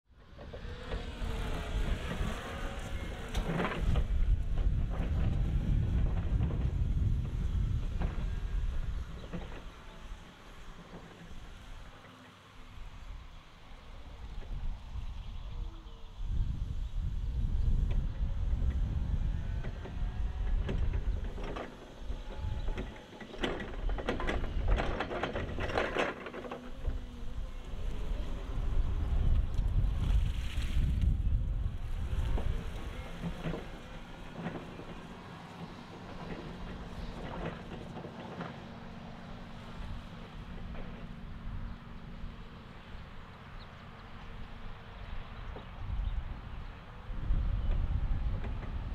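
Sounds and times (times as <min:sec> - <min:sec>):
electric forklift hum: 0:00.2 - 0:48.9
forklift rattling and clacking: 0:19.6 - 0:27.4.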